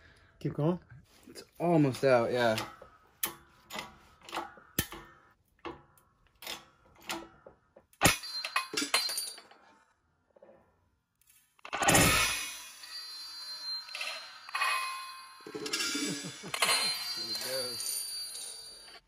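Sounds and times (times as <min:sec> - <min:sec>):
metal clattering and ringing: 0:08.0 - 0:09.7, 0:11.8 - 0:19.0.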